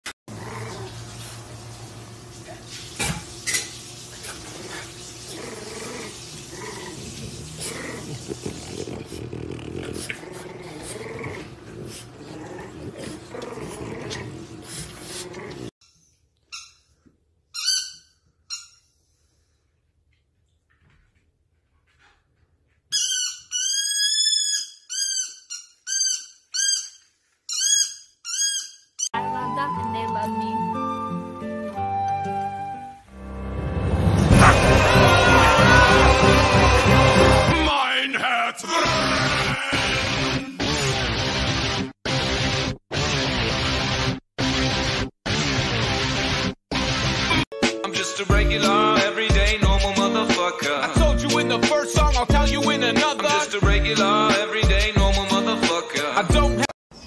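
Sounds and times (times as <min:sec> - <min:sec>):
dogs making wavering vocal sounds: 0:00.3 - 0:01.5, 0:04.1 - 0:15.8
rubber ball squeaking: 0:17.5 - 0:18.9, 0:22.9 - 0:29.2.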